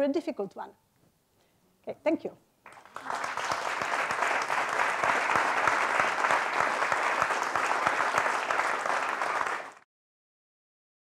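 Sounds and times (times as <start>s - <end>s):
audience applauding: 2.7s - 9.9s.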